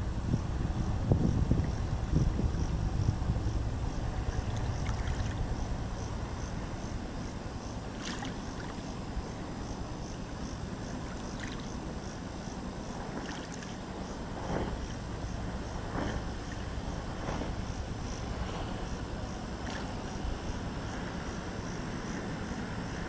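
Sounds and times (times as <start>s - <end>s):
steady low rumble: 0.0s - 13.2s, 13.8s - 23.0s
faint splashes: 4.2s - 5.5s, 7.9s - 8.9s, 11.0s - 11.8s, 13.0s - 13.8s, 19.6s - 20.4s
small waves lapping on pebbles: 7.9s - 8.9s.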